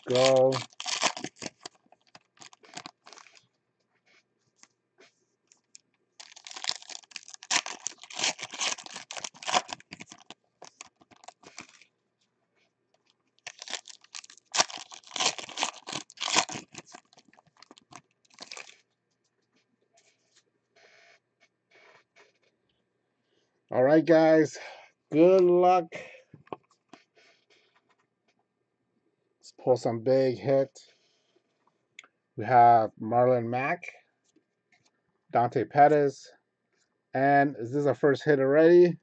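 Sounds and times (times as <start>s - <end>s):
foil wrappers tearing and crinkling: 0.0s - 3.4s, 6.2s - 11.9s, 13.4s - 18.8s.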